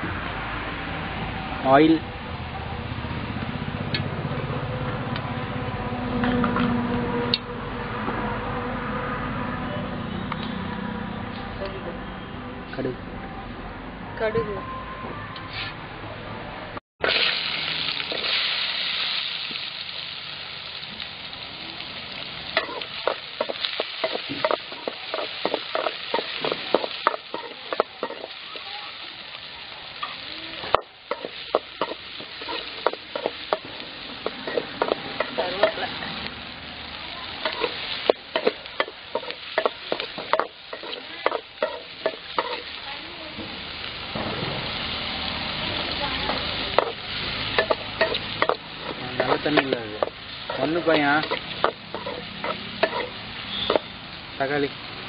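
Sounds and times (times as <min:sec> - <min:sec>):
onions sizzling in hot oil: 0:00.0 - 0:05.0, 0:17.0 - 0:55.0
metal ladle scraping a pan: 0:22.6 - 0:28.6, 0:30.7 - 0:36.2, 0:37.4 - 0:42.8, 0:46.8 - 0:53.9.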